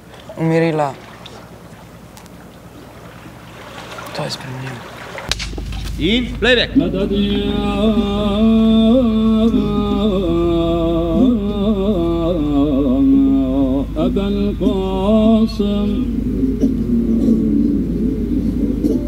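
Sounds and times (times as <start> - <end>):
person singing slow melody: 6.0 - 19.0.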